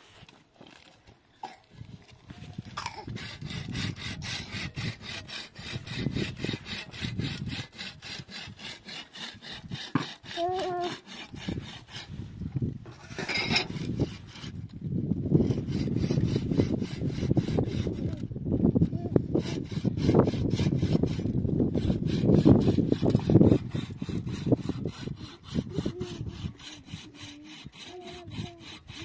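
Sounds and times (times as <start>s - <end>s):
rapid scraping strokes: 2.4s - 14.7s, 18.9s - 29.0s.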